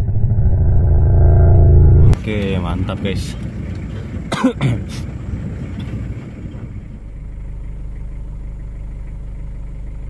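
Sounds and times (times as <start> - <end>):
vehicle engine idling: 2.1 - 10.0.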